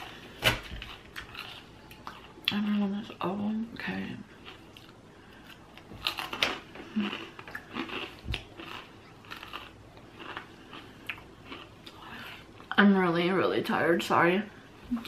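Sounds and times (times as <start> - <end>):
person chewing salad: 0.0 - 2.6, 4.4 - 12.7.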